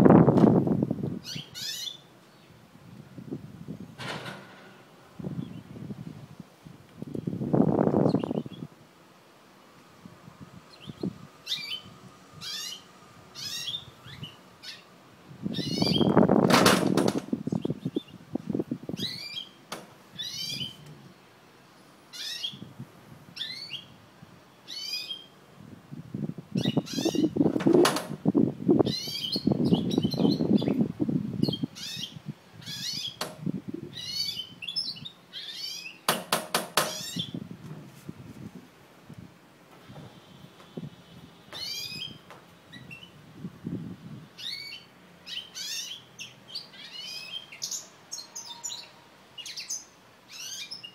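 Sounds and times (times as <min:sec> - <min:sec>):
finch singing: 0:01.2 - 0:02.5, 0:08.0 - 0:08.7, 0:10.7 - 0:14.9, 0:15.5 - 0:16.2, 0:19.0 - 0:19.6, 0:20.2 - 0:20.8, 0:22.1 - 0:22.7, 0:23.4 - 0:24.0, 0:24.6 - 0:25.3, 0:26.6 - 0:27.4, 0:28.8 - 0:30.8, 0:33.9 - 0:36.1, 0:36.8 - 0:37.4, 0:41.5 - 0:43.2, 0:44.4 - 0:50.9.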